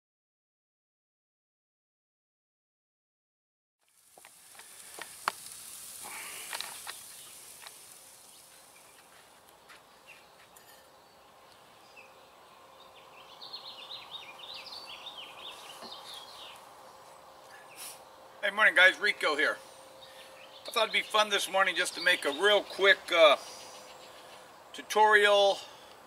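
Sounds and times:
wood fire hissing and crackling: 0:03.8 - 0:26.0
birds chirping: 0:06.0 - 0:26.0.

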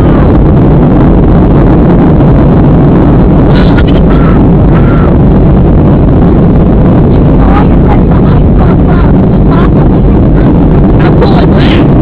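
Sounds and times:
jet engine cabin roar: 0:00.0 - 0:12.0
faint passenger voices: 0:03.5 - 0:05.2, 0:07.2 - 0:09.8.

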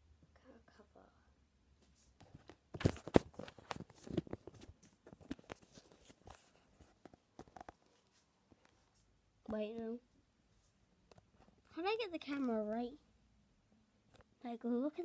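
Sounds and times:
handling knocks and rustles: 0:02.2 - 0:08.7.

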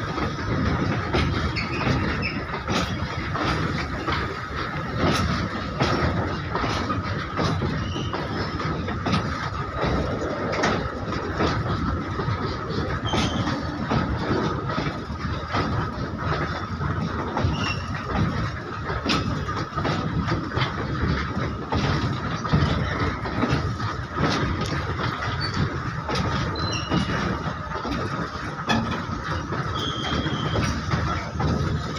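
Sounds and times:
clacks over rail joints: 0:00.0 - 0:31.9
rumble of steel train wheels: 0:00.0 - 0:31.9.

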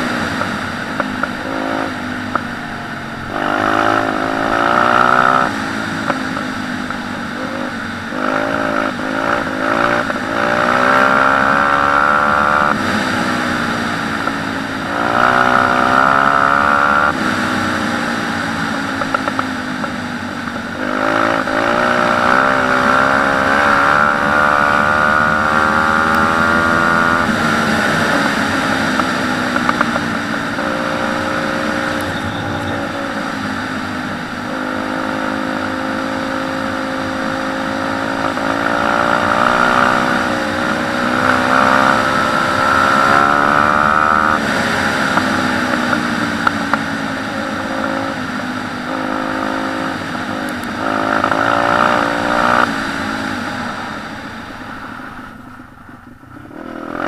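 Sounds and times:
motorbike engine revving: 0:00.0 - 0:57.0.

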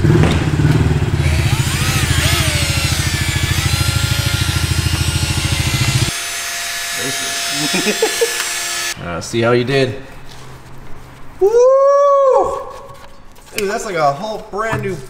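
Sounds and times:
cordless drill buffing: 0:01.2 - 0:09.0.

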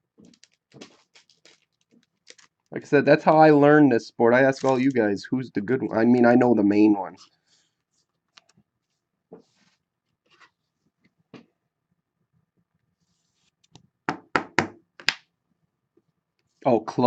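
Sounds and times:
cards and plastic holder clicking: 0:00.2 - 0:02.5, 0:04.6 - 0:05.0
sharp knocks on tabletop: 0:14.1 - 0:15.2.

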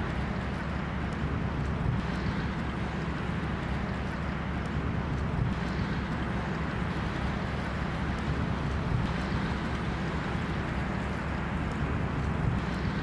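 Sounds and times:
boat engine running: 0:00.0 - 0:13.0
water rushing: 0:00.0 - 0:13.0
wind noise: 0:04.7 - 0:13.0.

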